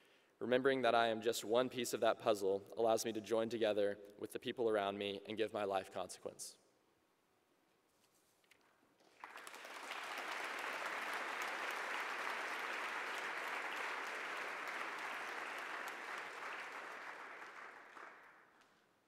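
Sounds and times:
audience applause: 9.0 - 18.4.

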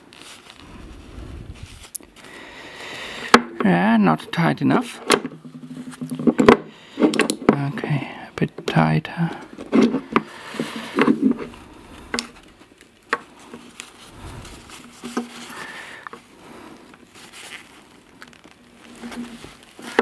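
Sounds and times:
paper tissue rustling: 0.0 - 2.9, 9.8 - 20.0.

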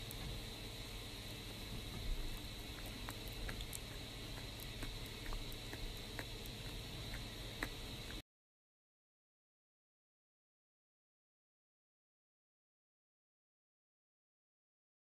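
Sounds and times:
steady hiss: 0.0 - 8.2
goat lips clicking and smacking: 1.8 - 8.2.

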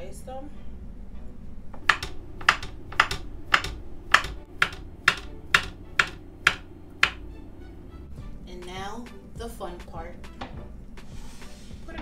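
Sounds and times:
knife chopping on wooden board: 1.8 - 7.2.

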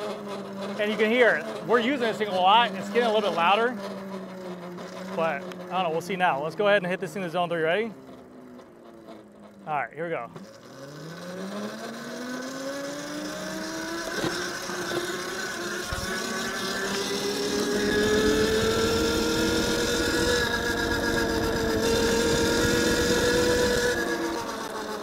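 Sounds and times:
electric motor whining: 10.3 - 25.0.

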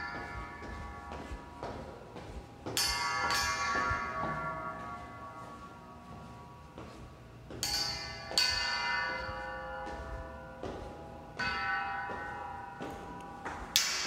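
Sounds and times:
bell-like struck tones: 0.0 - 14.0.

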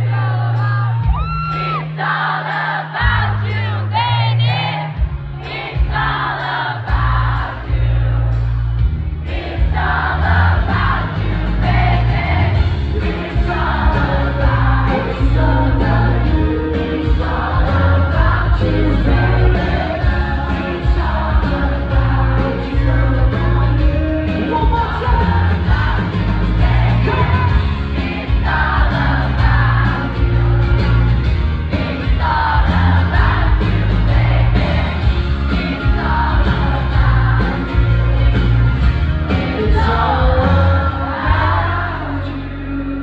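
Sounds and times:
crowd singing along: 0.0 - 43.0
live pop-rock band: 0.0 - 43.0
man singing lead vocal: 9.8 - 38.5, 39.2 - 43.0.

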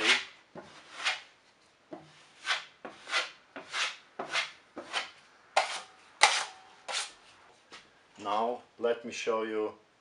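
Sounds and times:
taping knife scraping joint compound: 0.0 - 7.3.

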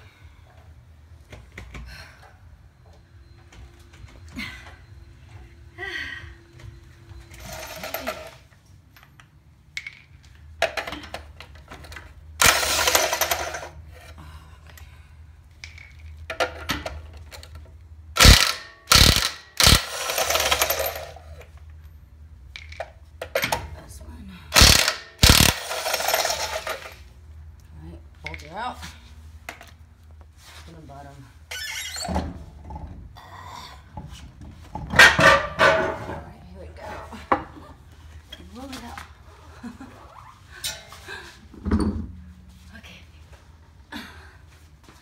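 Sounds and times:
impact wrench hammering: 12.4 - 13.7, 18.2 - 21.1, 24.6 - 26.9.

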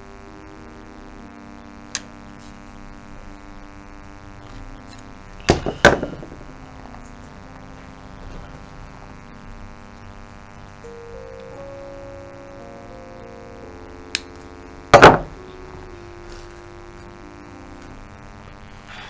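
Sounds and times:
soft background music: 0.0 - 19.0
loud double knock: 5.5 - 6.5, 15.0 - 15.4.

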